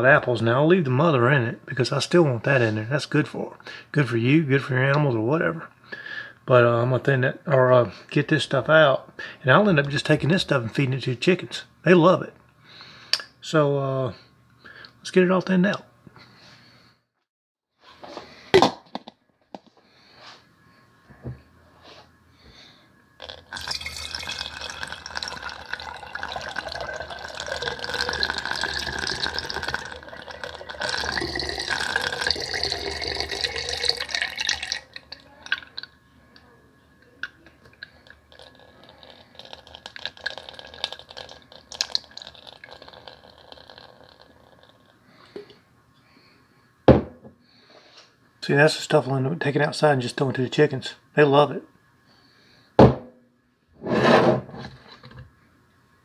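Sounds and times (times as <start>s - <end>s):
liquid pouring through a funnel: 23.2s - 35.9s, 37.7s - 45.0s
liquid trickling and dripping: 23.2s - 35.9s, 37.7s - 44.9s.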